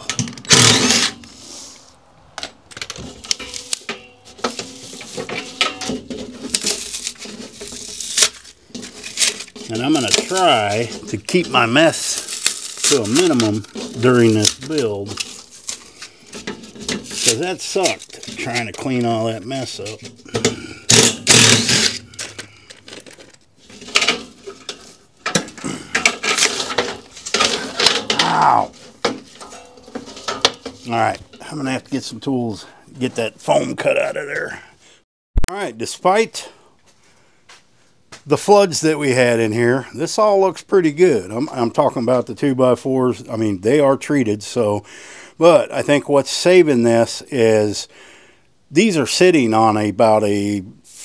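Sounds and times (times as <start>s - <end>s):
clicks and knocks: 2.4s - 11.1s
foam and trim tearing: 6.5s - 16.0s.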